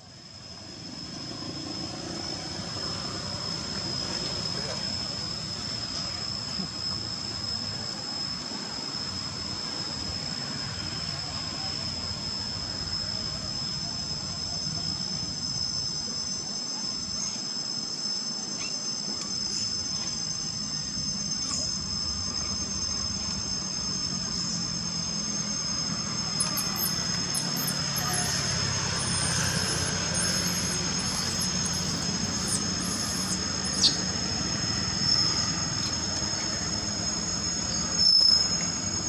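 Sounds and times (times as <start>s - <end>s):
insects droning high-pitched: 0.0s - 39.0s
low background rumble: 19.6s - 39.0s.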